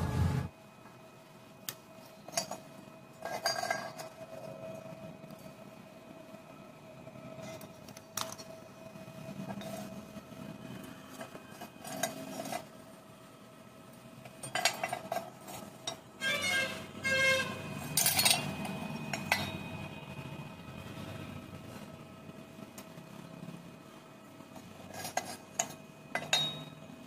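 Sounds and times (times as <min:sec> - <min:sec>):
faint steady hum: 0:00.0 - 0:27.0
steel pieces clinking on steel plate: 0:03.2 - 0:04.1, 0:17.9 - 0:19.6, 0:24.9 - 0:26.7.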